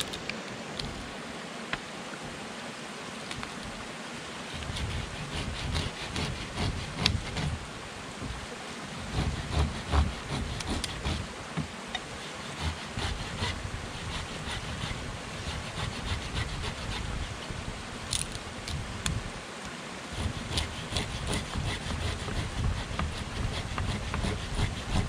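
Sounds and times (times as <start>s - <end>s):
hand saw cutting wood: 4.5s - 7.6s, 9.0s - 17.5s, 20.1s - 25.0s.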